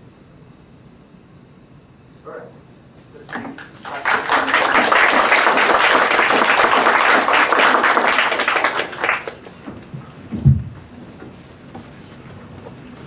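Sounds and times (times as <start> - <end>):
audience applauding: 3.2 - 9.6
low thump: 10.3 - 10.8.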